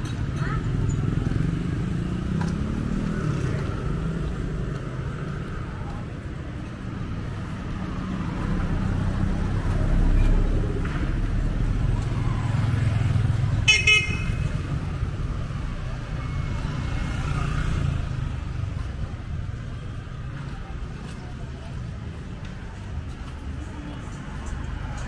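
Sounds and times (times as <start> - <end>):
vehicles passing close by: 0.0 - 25.0
vehicle horn honk: 13.7 - 14.5.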